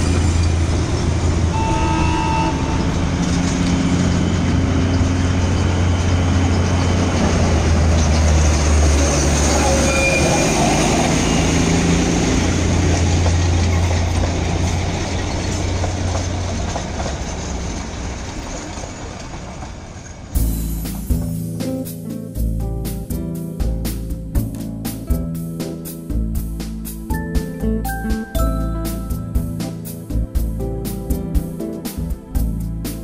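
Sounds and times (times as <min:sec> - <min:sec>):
model train running on track: 0:00.0 - 0:20.4.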